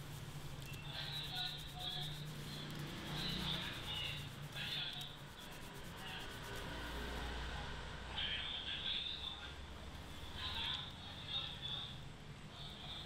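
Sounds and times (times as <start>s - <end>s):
fingers rubbing wet hair: 0.0s - 7.1s.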